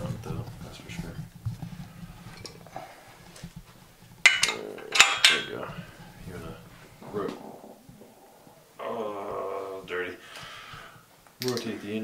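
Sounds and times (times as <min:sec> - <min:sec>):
metal tools clanking: 0:04.2 - 0:07.5.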